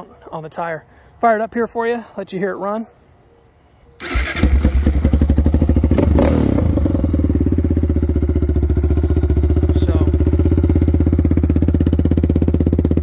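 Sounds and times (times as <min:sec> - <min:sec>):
engine starting and idling: 0:04.0 - 0:05.3.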